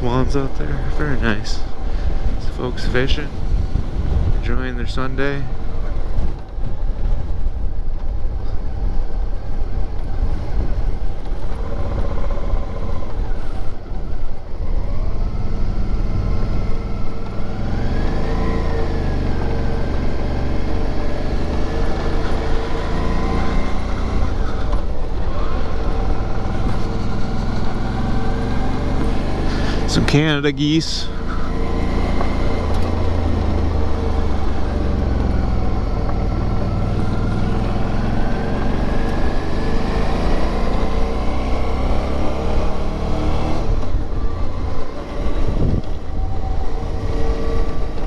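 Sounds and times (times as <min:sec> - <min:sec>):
motorcycle engine running: 0:18.7 - 0:30.3, 0:31.0 - 0:41.8.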